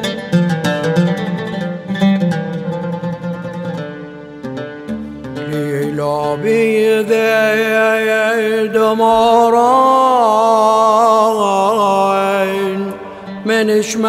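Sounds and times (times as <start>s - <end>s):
instrumental backing: 0.0s - 9.7s
man chanting a hymn: 5.5s - 14.0s.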